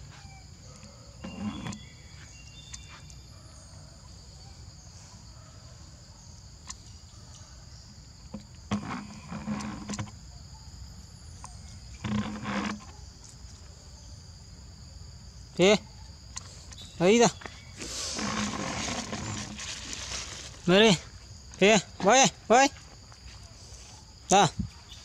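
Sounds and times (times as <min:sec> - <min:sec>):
insect chorus buzzing: 0:00.0 - 0:25.0.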